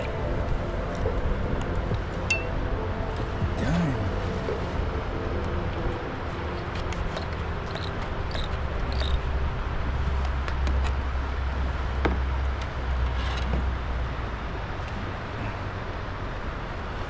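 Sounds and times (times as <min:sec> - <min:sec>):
wind rumble on microphone: 0:00.0 - 0:17.0
fishing reel clicking: 0:07.2 - 0:09.2.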